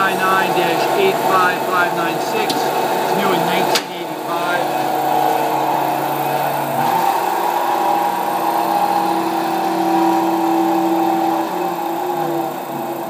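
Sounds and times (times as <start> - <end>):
bandsaw humming and whining: 0.0 - 13.0.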